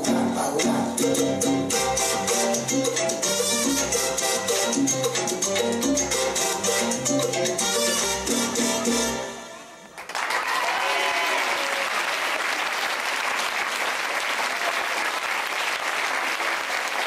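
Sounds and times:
salsa music: 0:00.0 - 0:10.0
audience applause: 0:10.0 - 0:17.0
people cheering: 0:10.0 - 0:17.0.

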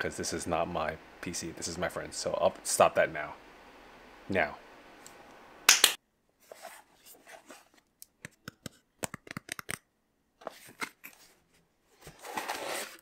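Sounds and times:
cardboard rustling: 0:06.4 - 0:07.8, 0:10.4 - 0:13.0.

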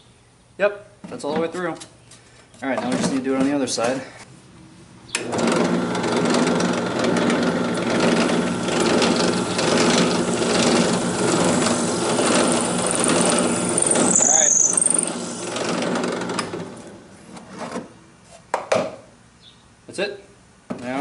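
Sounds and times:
drill press drilling wood: 0:05.2 - 0:17.0.

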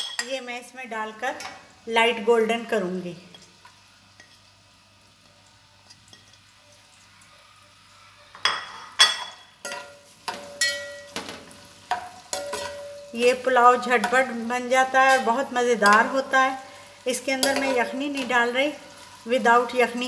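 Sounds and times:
onions sizzling in oil: 0:00.0 - 0:20.0
metal spoon scraping a pot: 0:11.9 - 0:13.2.

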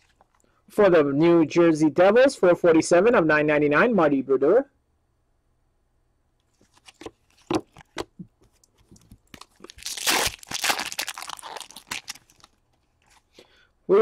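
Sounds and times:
foil wrapper crinkling: 0:08.7 - 0:13.3.

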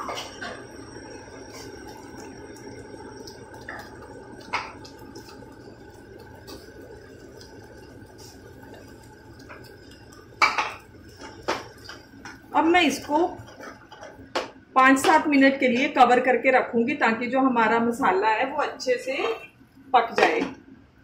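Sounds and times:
sauce bubbling in a pan: 0:00.0 - 0:14.8.

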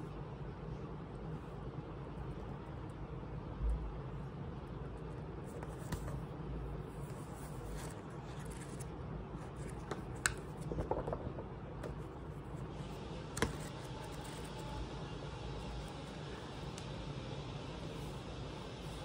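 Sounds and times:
low background hum: 0:00.0 - 0:19.0
paper rustling: 0:07.0 - 0:12.3
book taps: 0:13.4 - 0:13.7.

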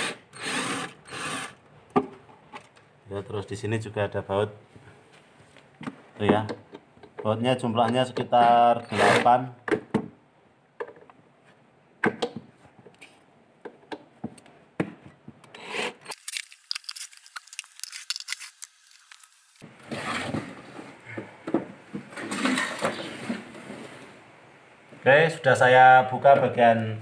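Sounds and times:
panels rubbing and scraping: 0:19.6 - 0:21.4, 0:22.0 - 0:24.4.

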